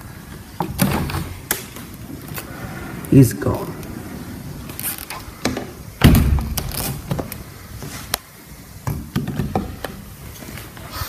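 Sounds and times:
heavy thump: 0:05.4 - 0:06.7.

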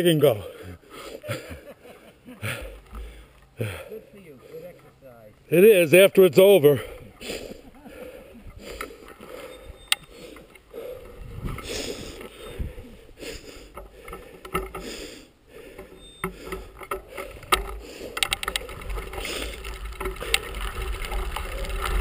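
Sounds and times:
bicycle rattling over gravel: 0:15.8 - 0:22.0.

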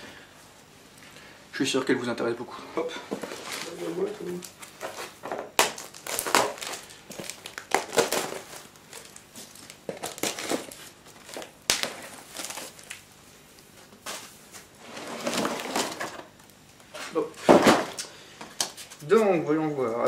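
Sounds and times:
tape and plastic rustling: 0:03.1 - 0:19.4
knife slitting packing tape: 0:05.6 - 0:09.1.

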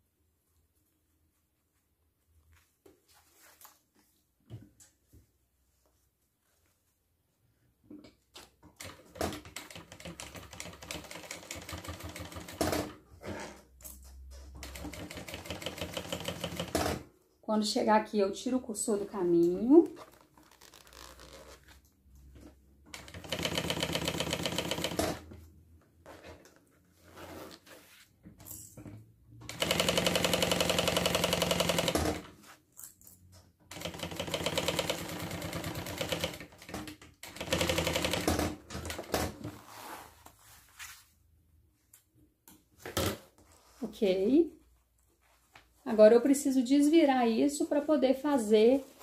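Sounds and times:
fabric rustling: 0:00.4 - 0:07.4, 0:39.5 - 0:41.4, 0:48.4 - 0:49.0
sewing machine stitching: 0:14.4 - 0:17.1, 0:22.9 - 0:25.2, 0:29.5 - 0:32.3, 0:33.7 - 0:39.4.

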